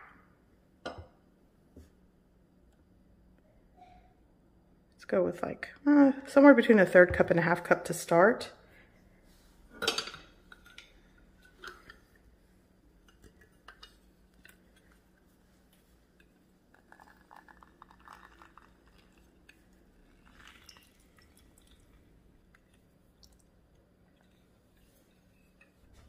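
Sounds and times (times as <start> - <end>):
citrus press crackling and dripping: 13.1 - 25.9.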